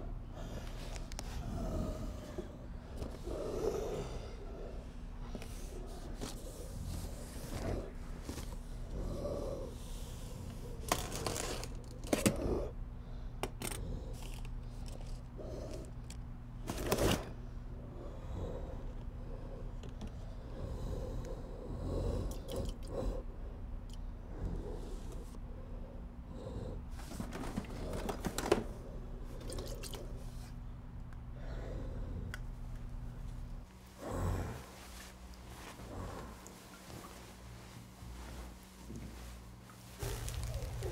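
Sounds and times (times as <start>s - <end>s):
steady low hum: 0.0s - 40.9s
cardboard tearing: 40.0s - 40.9s.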